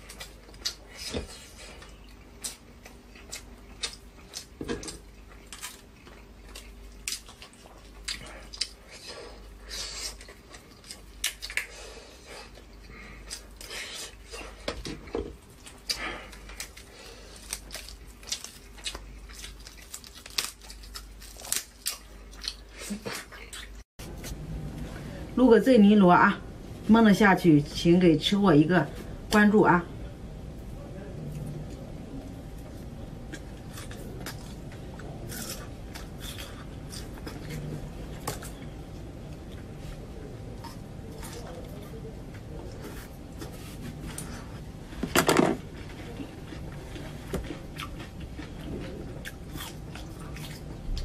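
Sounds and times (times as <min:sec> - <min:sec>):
chewing: 0:00.0 - 0:24.4, 0:31.2 - 0:38.7, 0:45.6 - 0:51.0
low hum: 0:24.0 - 0:51.0.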